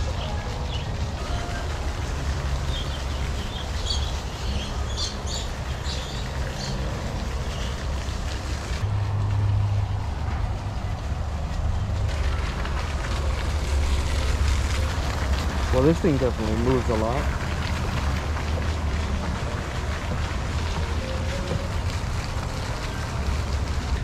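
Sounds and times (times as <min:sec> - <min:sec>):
high bird chirps: 0:02.6 - 0:06.9.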